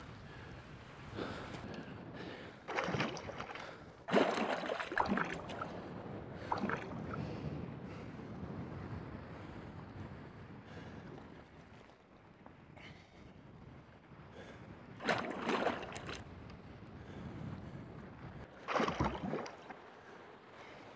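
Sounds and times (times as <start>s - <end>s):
sea water sloshing and splashing: 1.2s - 7.6s, 15.0s - 16.3s, 18.5s - 20.9s.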